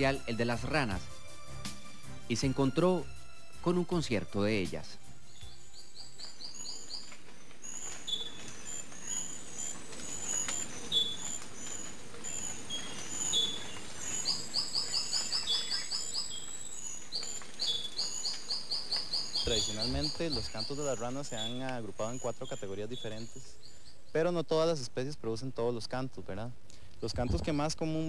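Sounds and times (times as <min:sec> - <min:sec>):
frogs chirping: 0:05.3 - 0:24.7.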